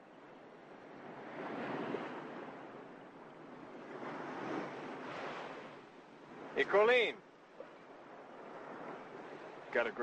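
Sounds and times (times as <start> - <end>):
surf washing onto beach: 3.6 - 10.0.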